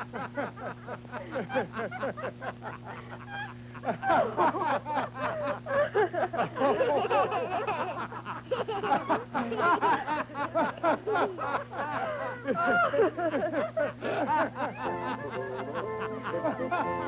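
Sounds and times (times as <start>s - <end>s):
people laughing and chattering: 0.8s - 17.0s.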